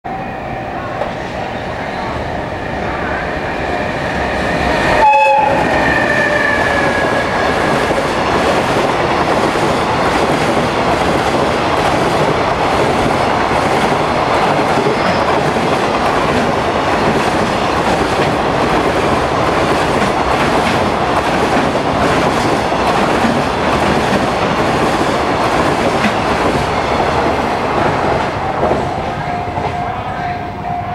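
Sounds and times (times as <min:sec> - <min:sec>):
train wheels rumbling on rails: 0:00.9 - 0:30.9
train horn: 0:04.8 - 0:07.7.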